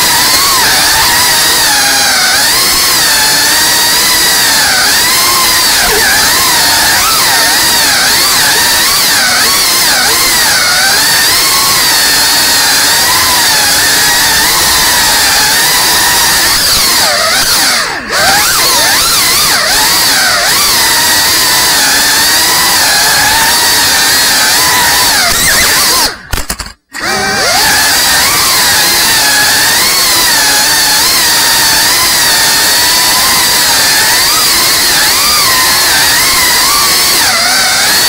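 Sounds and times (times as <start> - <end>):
drone motors whining: 0.0 - 38.0.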